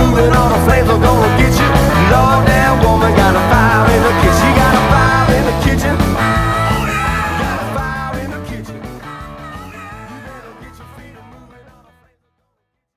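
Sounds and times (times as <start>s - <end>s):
rock song with guitar: 0.0s - 11.9s.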